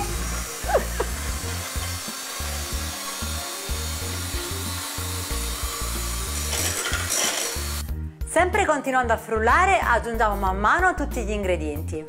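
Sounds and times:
electric hand mixer whisking eggs: 0.0 - 7.9.

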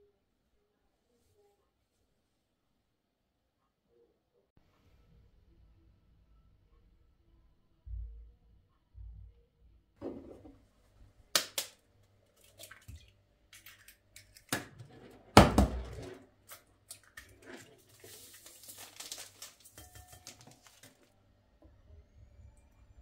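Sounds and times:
paper packet crinkling and tearing: 17.0 - 21.1.

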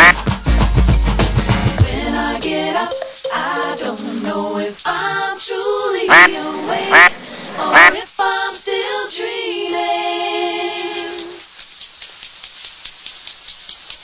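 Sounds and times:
duck quacks: 0.0 - 0.2, 6.1 - 8.0
song with sung melody: 1.6 - 11.4.

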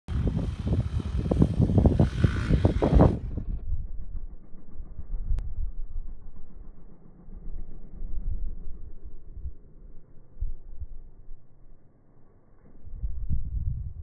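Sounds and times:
wind buffeting microphone: 0.1 - 6.4, 12.8 - 14.0.

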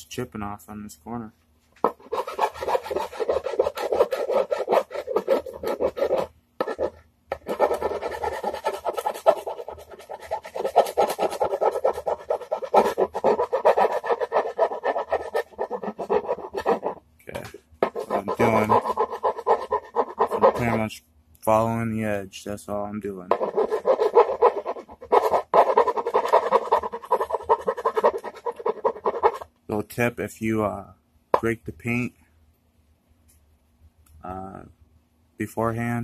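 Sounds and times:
hand file rasping on painted wood: 1.9 - 17.0, 17.8 - 20.8, 23.3 - 29.4.

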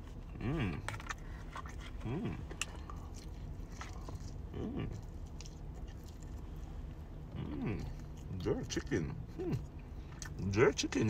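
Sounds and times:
man chewing: 0.0 - 10.5
man humming approval: 7.3 - 8.0.

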